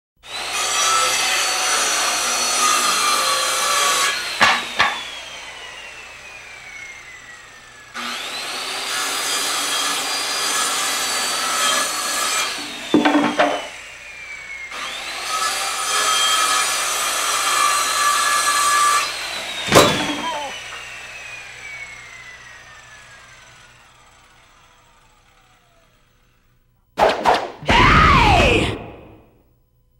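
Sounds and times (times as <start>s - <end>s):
circular saw cutting wood: 0.2s - 26.6s
wood pieces dropping: 12.6s - 13.8s, 19.7s - 20.8s.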